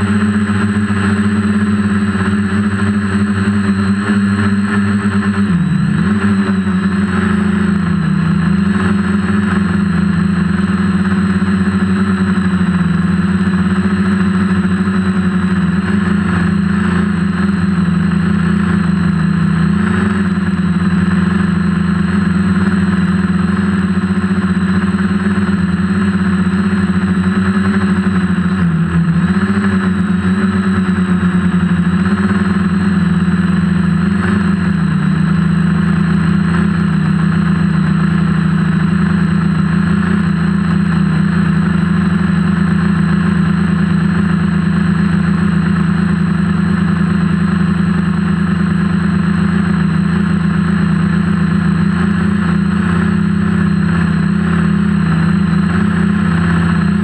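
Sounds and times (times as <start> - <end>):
quadcopter propellers humming: 0.0 - 57.0.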